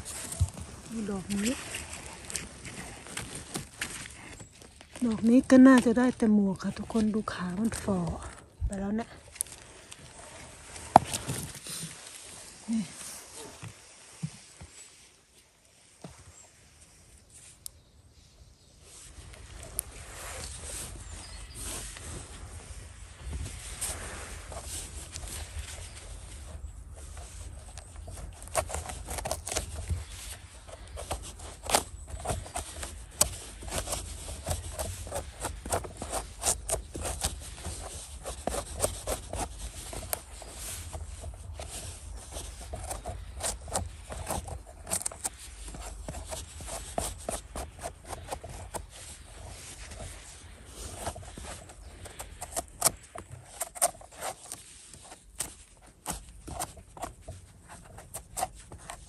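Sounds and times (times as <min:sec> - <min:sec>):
footsteps in leaf litter: 0:00.0 - 0:17.5
handling crackles and scrapes: 0:00.0 - 0:59.0.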